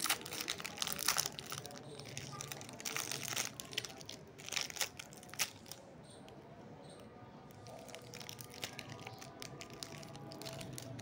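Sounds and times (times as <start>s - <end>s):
foil wrapper crinkling: 0.0s - 5.8s, 7.6s - 11.0s.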